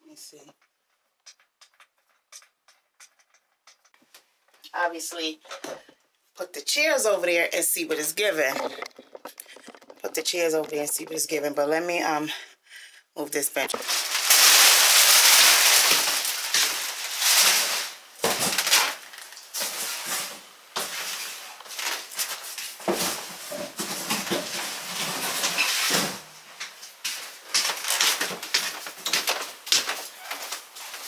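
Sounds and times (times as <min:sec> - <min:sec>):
footsteps: 0:07.6 - 0:11.9, 0:13.5 - 0:14.3.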